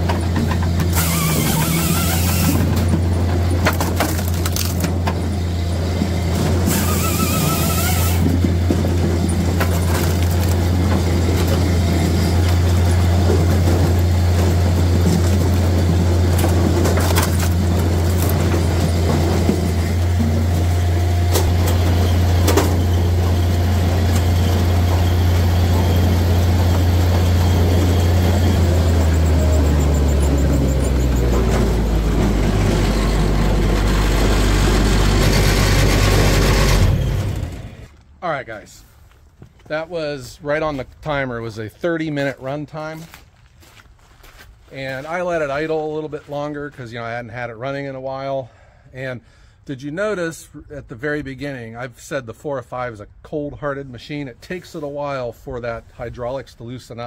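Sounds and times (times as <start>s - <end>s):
firewood processor running: 0.0s - 38.1s.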